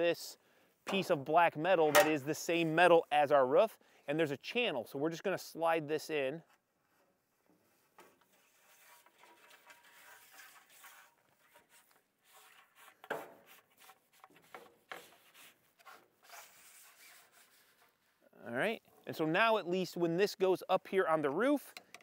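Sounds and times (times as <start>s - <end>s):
sharp metal knocks: 1.9s - 2.2s
metal scraping on metal: 8.2s - 13.0s.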